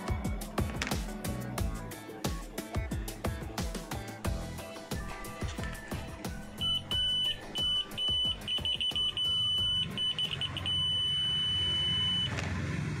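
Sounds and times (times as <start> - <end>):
electronic buzzer beeping: 6.6 - 12.4.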